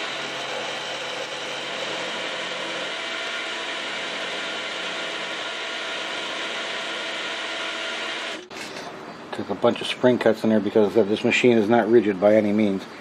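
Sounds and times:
milling machine whirring: 0.0s - 8.6s
faint gear whine: 0.0s - 13.0s.

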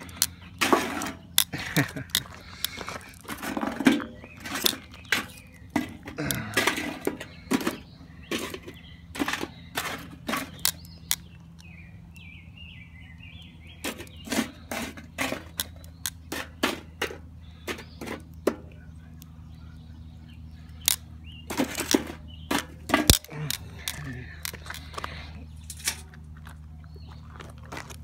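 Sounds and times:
metal tongs clicking on charcoal: 1.3s - 3.2s, 9.8s - 12.3s, 20.8s - 21.0s, 22.9s - 24.9s.

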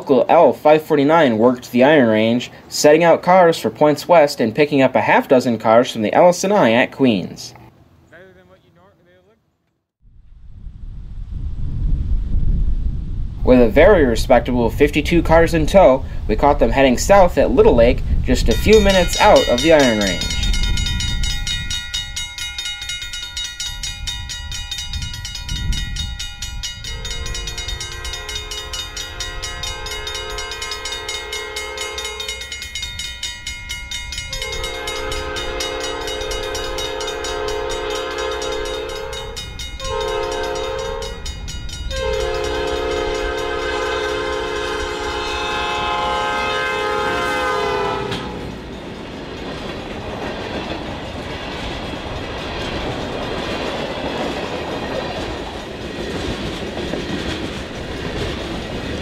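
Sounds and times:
train rumbling: 10.1s - 59.0s
locomotive air horn: 26.8s - 32.5s, 34.3s - 41.3s, 41.9s - 48.5s.

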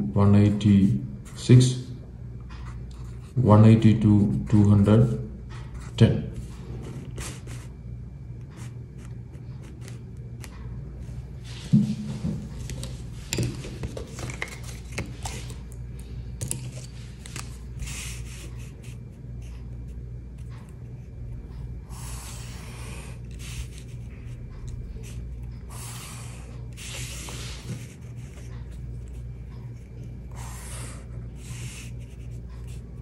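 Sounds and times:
steady low hum: 0.0s - 33.0s
felt-tip pen scratching on paper: 17.6s - 21.0s, 21.8s - 33.0s.

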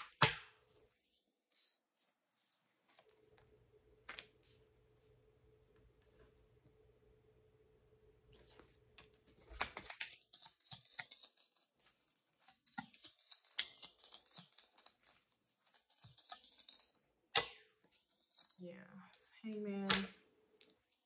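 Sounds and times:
cards shuffling: 8.4s - 18.6s.

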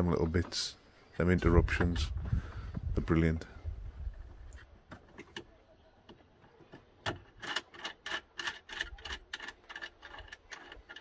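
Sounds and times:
light metallic clicking and rubbing: 4.5s - 11.0s.

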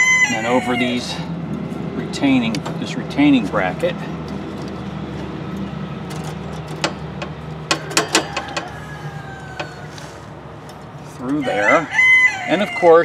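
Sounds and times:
belt clicking against metal brackets: 3.8s - 8.9s.

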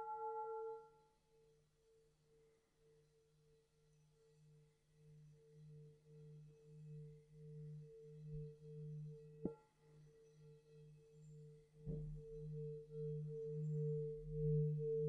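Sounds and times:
singing bowl knock and ringing: 0.0s - 0.8s
singing bowl low pulsing hum: 0.0s - 2.2s, 2.8s - 15.0s.

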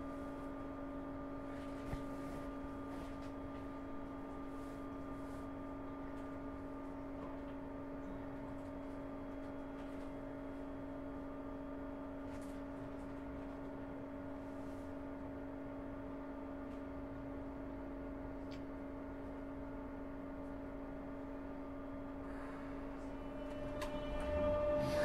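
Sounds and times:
low train rumble: 20.8s - 25.0s.

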